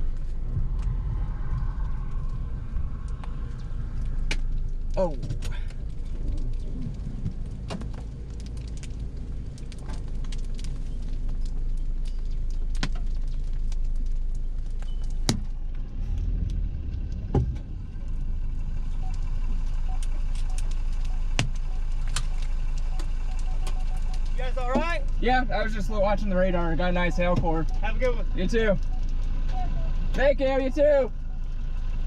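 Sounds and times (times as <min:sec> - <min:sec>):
low rumble: 0:00.0 - 0:32.0
hail tapping on car roof: 0:04.3 - 0:15.6, 0:19.0 - 0:29.2.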